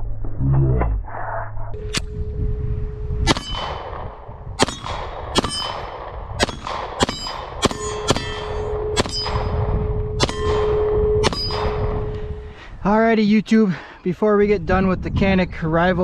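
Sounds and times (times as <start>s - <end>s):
pistol shots: 3.3s - 9.6s, 10.2s - 12.1s
steel targets clanging: 7.0s - 9.5s.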